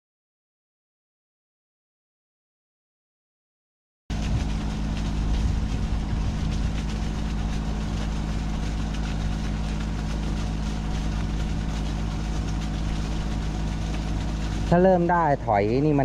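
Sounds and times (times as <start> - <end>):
boat engine idling: 4.1 - 16.0.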